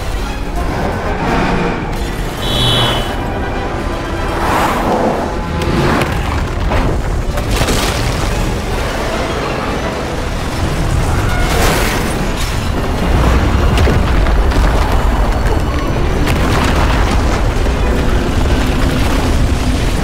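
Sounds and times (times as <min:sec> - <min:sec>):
film music: 0:00.0 - 0:20.0
deep earthquake rumble: 0:12.6 - 0:20.0.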